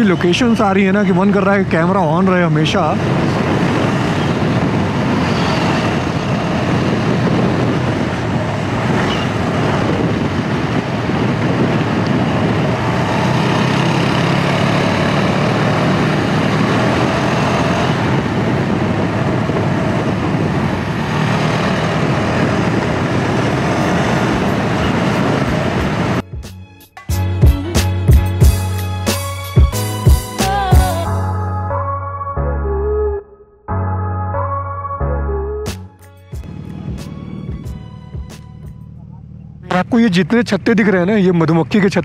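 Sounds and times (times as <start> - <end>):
wind on microphone: 2.2 - 26.2
motorcycle engine running: 36.3 - 41.9.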